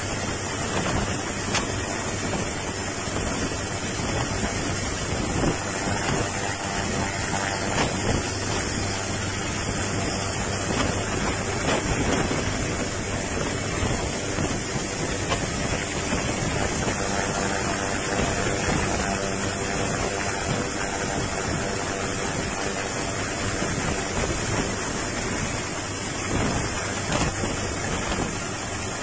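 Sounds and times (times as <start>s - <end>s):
floodwater rushing: 0.0s - 29.0s
wind on microphone: 0.0s - 29.0s.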